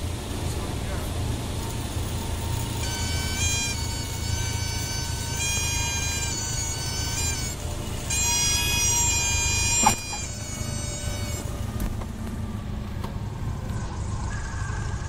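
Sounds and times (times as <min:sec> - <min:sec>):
airplane engine hum: 0:00.0 - 0:15.0
music with long held high notes: 0:01.6 - 0:11.8.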